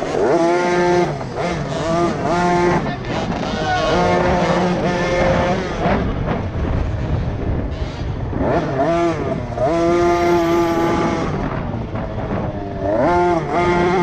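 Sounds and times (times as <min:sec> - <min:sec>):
motocross bike engine revving: 0:00.0 - 0:14.0
steady low rumble: 0:02.5 - 0:12.9.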